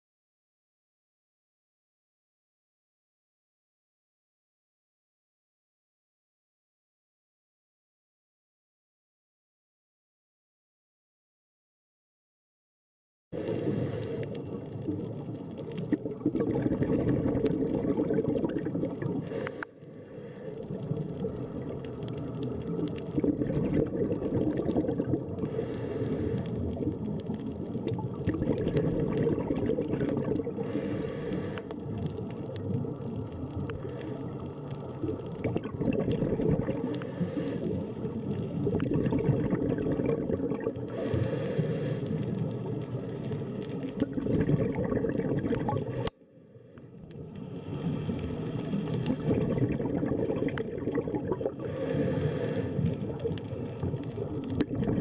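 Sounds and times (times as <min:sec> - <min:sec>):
underwater bubbles from divers exhaling: 0:13.4 - 0:46.1, 0:46.9 - 0:55.0.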